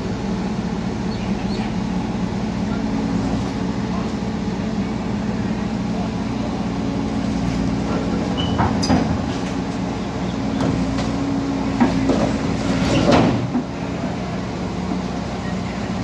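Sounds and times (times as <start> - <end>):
excavator diesel engine running: 0.0 - 16.0
metallic squeaks and knocks: 8.4 - 9.0.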